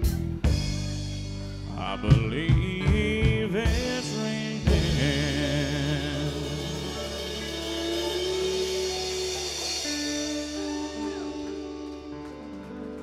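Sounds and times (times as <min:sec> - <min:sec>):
electric guitar licks: 0:00.0 - 0:13.0
drum hits: 0:02.1 - 0:11.8.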